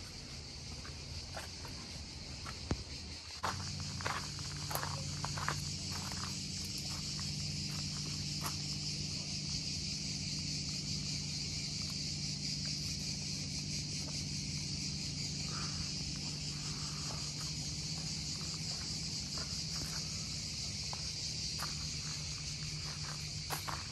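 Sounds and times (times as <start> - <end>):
insects chirring: 0.0 - 23.9
light footsteps: 0.8 - 8.8, 16.2 - 23.9.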